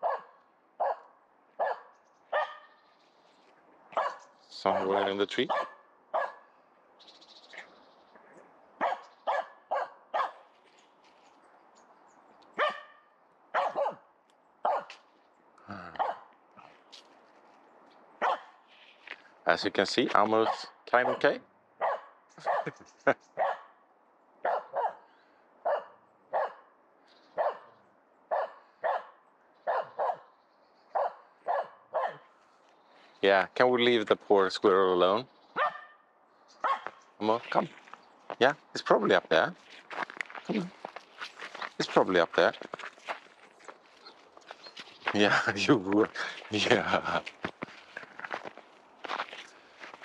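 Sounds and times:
dog barking: 0.0 - 2.8, 3.9 - 6.5, 8.8 - 10.5, 12.6 - 15.0, 15.9 - 16.3, 18.2 - 18.6, 20.4 - 22.8, 23.4 - 23.8, 24.4 - 26.7, 27.4 - 30.3, 30.9 - 32.3, 35.6 - 36.0, 36.6 - 37.0.

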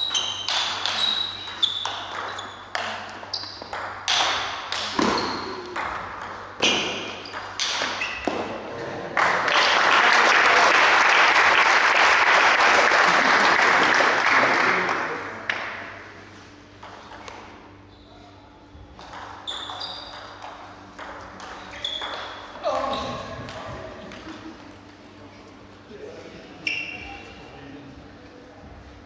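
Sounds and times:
table tennis ball pinging: 0.0 - 8.6, 16.8 - 17.5, 18.9 - 25.3
applause: 9.1 - 15.4.

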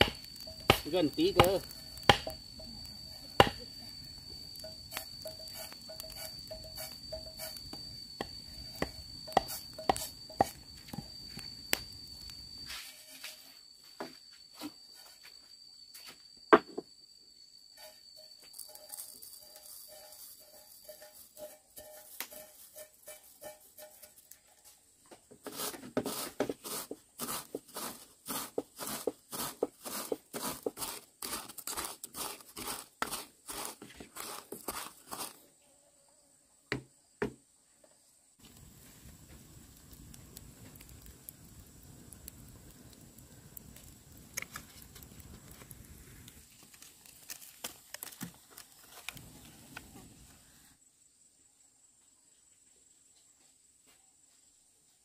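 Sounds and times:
low steady hiss: 0.0 - 14.6, 35.4 - 55.0
pestle pounding in mortar: 2.1 - 2.4.

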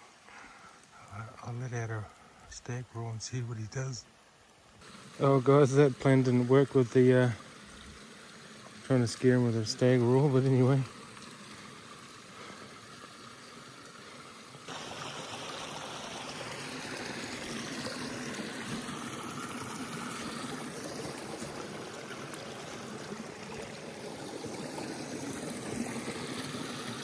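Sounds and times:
creek running over rocks: 0.0 - 27.0.

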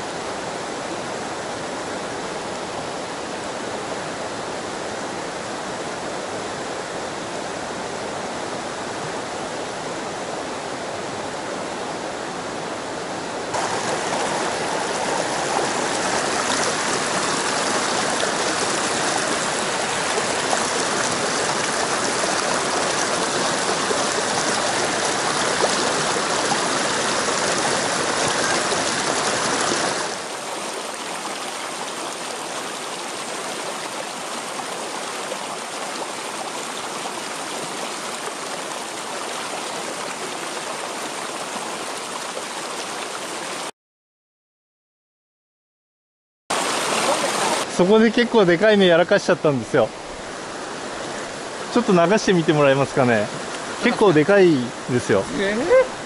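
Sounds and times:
stream rushing over rocks: 0.0 - 43.7, 46.5 - 56.0.

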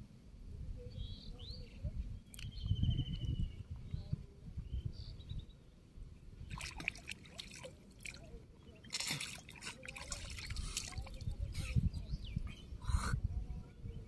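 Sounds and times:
shallow water splashing: 6.4 - 11.4.

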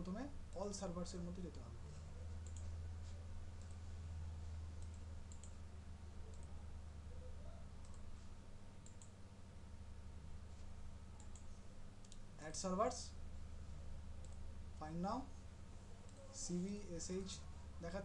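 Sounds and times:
low electrical hum: 0.0 - 18.0
computer mouse clicks: 2.4 - 2.7, 3.6 - 3.8, 4.8 - 5.6, 6.3 - 6.6, 7.8 - 8.2, 8.8 - 9.2, 11.2 - 12.2, 14.2 - 14.4.

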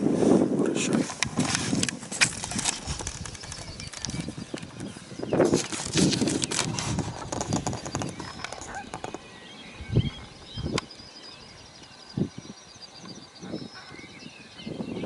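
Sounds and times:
camera handling rustling and clicking: 0.9 - 9.2
birds chirping: 1.8 - 15.0.

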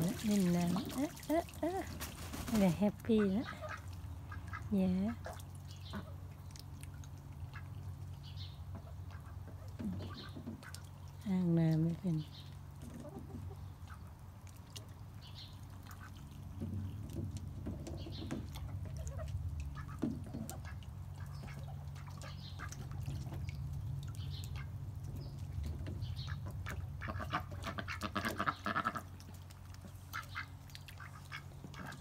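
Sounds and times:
ducks quacking: 0.0 - 6.2, 18.6 - 23.0, 26.0 - 29.2, 29.8 - 32.0
ducks splashing in water: 0.0 - 32.0
steady low hum: 0.0 - 32.0.

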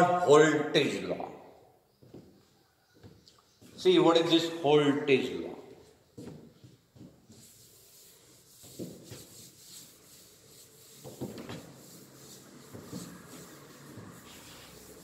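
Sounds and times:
duster rubbing on blackboard: 7.2 - 15.0.

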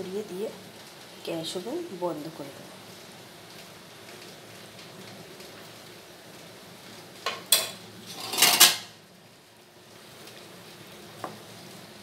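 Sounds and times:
metal cookware clinking: 7.2 - 8.9
metal cookware scraping clatter: 7.3 - 8.9.

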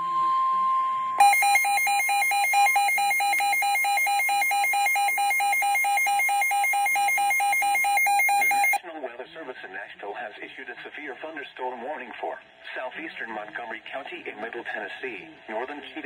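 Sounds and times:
steady single-pitch warning tone: 0.0 - 8.8
shrill pulsing alert alarm: 1.2 - 8.8.

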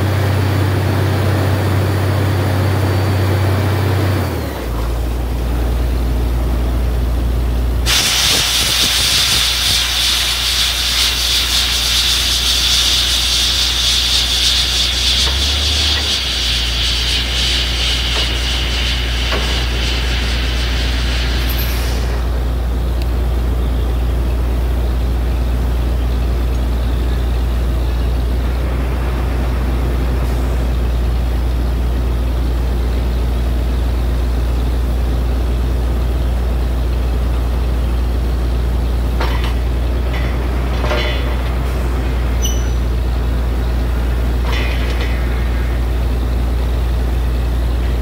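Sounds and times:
drilling rig engine droning: 0.0 - 48.0
short noisy bursts: 7.8 - 22.6.

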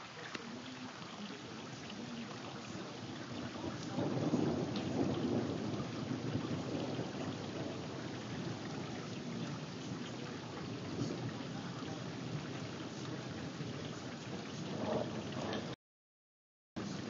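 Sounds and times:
steady rain: 0.0 - 15.8, 16.8 - 17.0
thunder rumbling: 1.2 - 15.8.

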